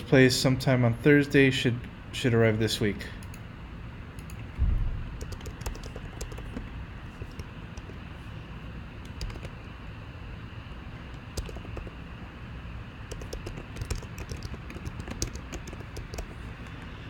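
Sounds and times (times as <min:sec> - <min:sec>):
steady background noise: 0:00.0 - 0:17.0
computer keyboard typing: 0:05.2 - 0:08.1, 0:09.0 - 0:09.7, 0:11.1 - 0:12.0, 0:13.0 - 0:17.0.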